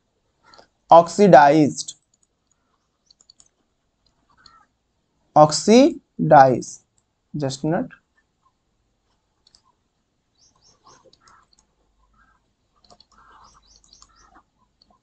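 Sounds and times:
soft clicks: 0:01.9 - 0:04.6, 0:08.2 - 0:09.8, 0:10.4 - 0:15.0
faint high chirps: 0:10.3 - 0:15.0.

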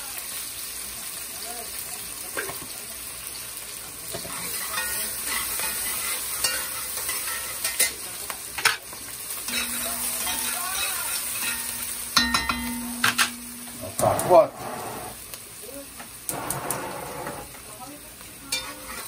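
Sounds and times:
vegetables sizzling in hot oil: 0:00.0 - 0:19.0
spoon stirring and scraping: 0:04.2 - 0:08.0, 0:09.5 - 0:15.2, 0:18.5 - 0:19.0.

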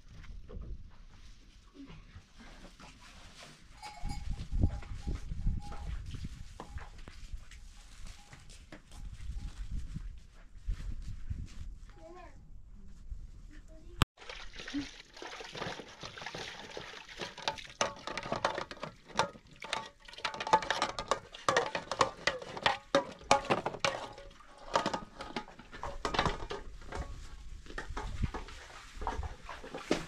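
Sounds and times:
water splashing into metal bowl: 0:14.2 - 0:26.3
metal pots clinking: 0:15.5 - 0:27.3.

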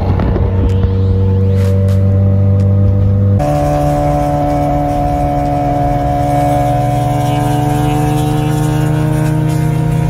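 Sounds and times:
car engines cruising: 0:00.0 - 0:10.0.

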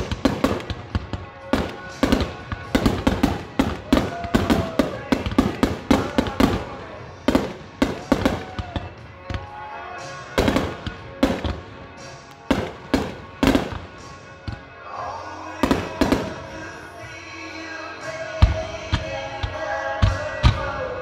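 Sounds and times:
music: 0:00.0 - 0:21.0
firework shells bursting: 0:10.4 - 0:14.2.

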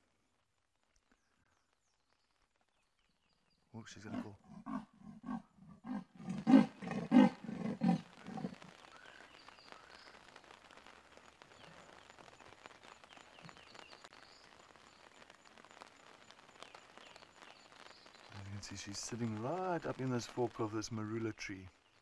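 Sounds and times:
leopard sawing call: 0:04.1 - 0:08.6.

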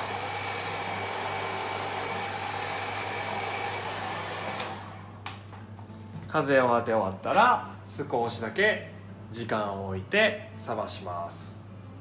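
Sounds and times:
hair dryer running: 0:00.0 - 0:05.0.

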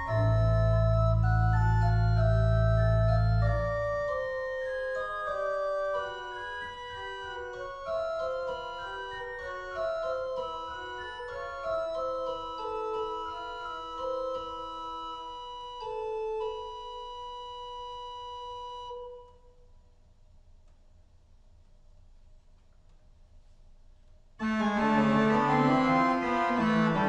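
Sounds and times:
deep organ pedal note: 0:00.0 - 0:06.3
pipe organ playing: 0:00.0 - 0:19.4, 0:24.4 - 0:27.0.

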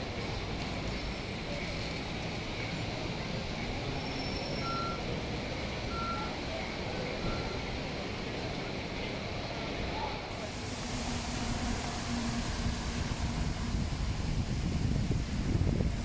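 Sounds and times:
city street traffic: 0:00.0 - 0:16.0
short electronic beeps: 0:04.6 - 0:05.0.

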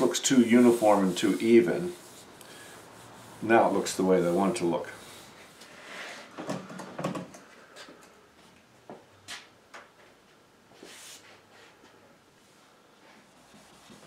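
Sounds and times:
steel wool rubbing wood: 0:00.0 - 0:06.1.

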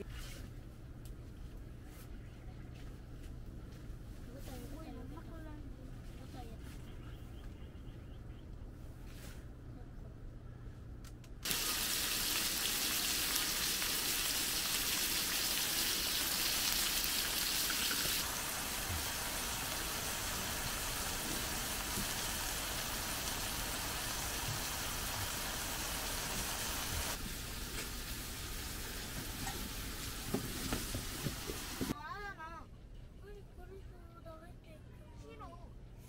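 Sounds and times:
meat sizzling on griddle: 0:11.4 - 0:31.9.

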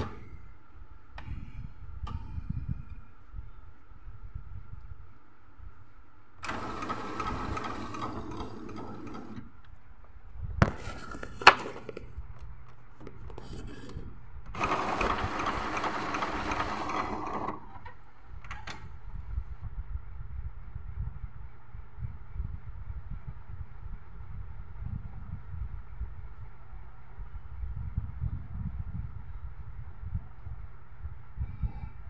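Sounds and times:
inkjet printer pump running: 0:06.4 - 0:09.5, 0:13.0 - 0:17.7
sharp printer clicks: 0:06.4 - 0:09.5, 0:13.0 - 0:18.7.

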